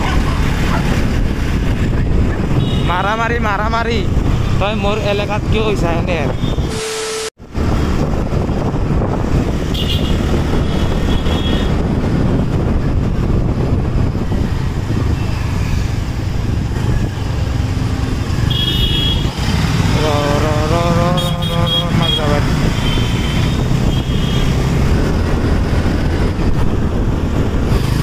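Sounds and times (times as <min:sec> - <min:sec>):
road and wind noise: 0:00.0 - 0:28.0
brief high tones: 0:06.6 - 0:07.3.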